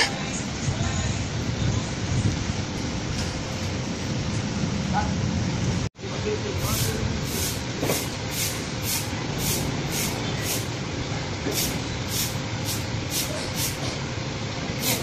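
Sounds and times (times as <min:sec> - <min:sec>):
outdoor background rumble: 0:00.0 - 0:15.0
broom swishing on paving: 0:06.6 - 0:10.7.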